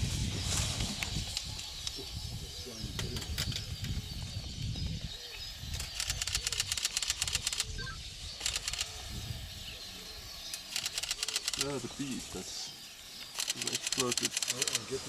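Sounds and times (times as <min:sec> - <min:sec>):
camera shutter bursts: 0:05.9 - 0:07.8, 0:08.4 - 0:08.9, 0:10.5 - 0:11.8, 0:13.3 - 0:14.8.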